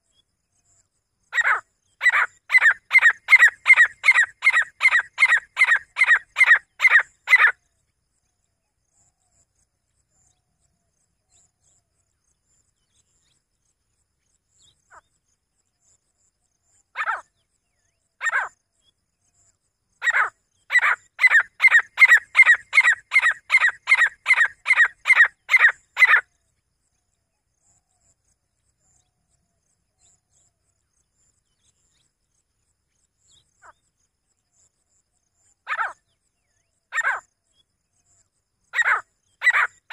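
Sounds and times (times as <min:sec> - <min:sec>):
francolin calling: 0:01.3 - 0:07.6, 0:20.0 - 0:26.3, 0:35.7 - 0:36.0, 0:36.9 - 0:37.3, 0:38.7 - 0:39.9.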